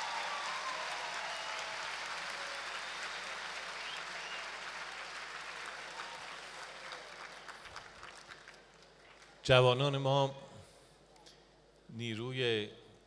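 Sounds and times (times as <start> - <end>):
large audience applauding: 0.0 - 9.4.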